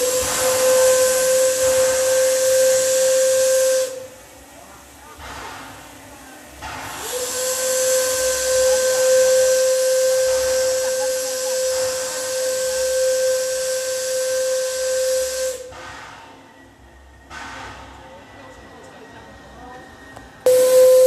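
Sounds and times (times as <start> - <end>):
steam whistle blast: 0.0 - 4.2, 7.0 - 15.8, 20.5 - 21.0
hissing steam: 0.0 - 18.8, 20.4 - 21.0.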